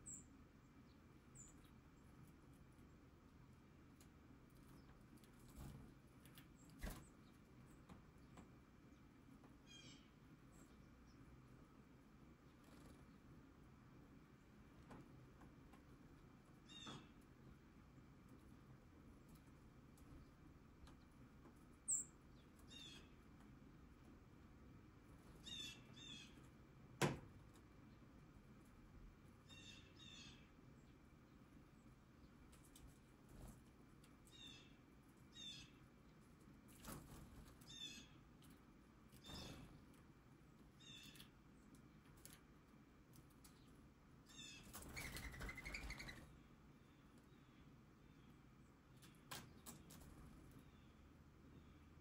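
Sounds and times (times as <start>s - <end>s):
small birds chittering: 0.0s - 26.7s, 27.5s - 42.4s, 43.0s - 52.0s
songbird calls: 9.6s - 10.8s, 21.9s - 23.2s, 29.5s - 30.5s, 44.3s - 46.3s
dove wing flaps whistling: 44.8s - 46.3s.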